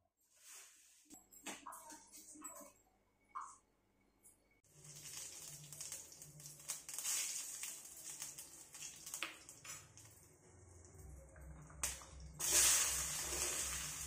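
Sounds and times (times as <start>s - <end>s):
hot oil sizzling and crackling: 4.7s - 11.1s, 11.7s - 14.0s.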